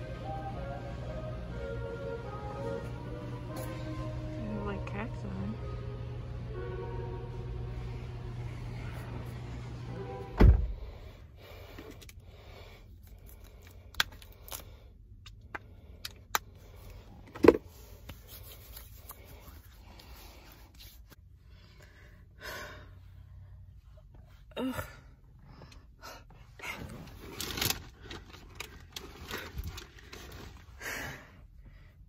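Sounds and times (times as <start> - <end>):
low hum: 0.0 - 17.3
heavy low thump: 10.3 - 11.0.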